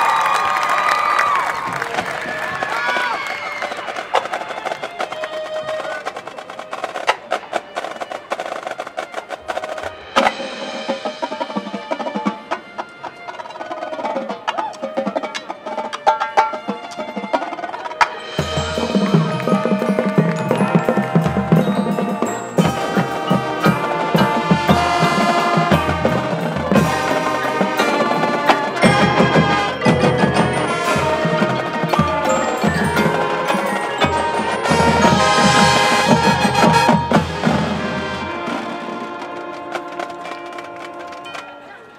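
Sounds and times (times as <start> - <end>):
mallet percussion: 9.1 - 38.5
wood block: 18.0 - 37.4.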